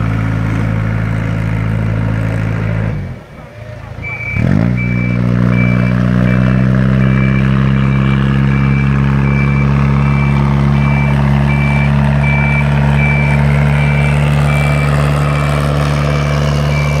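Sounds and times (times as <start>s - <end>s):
tractor engine running: 0.0s - 17.0s
short high warning beeps: 4.0s - 15.6s.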